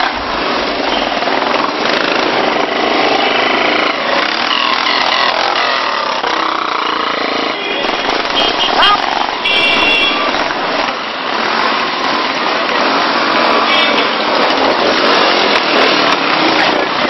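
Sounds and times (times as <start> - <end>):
motorcycles riding past: 0.0 - 17.0.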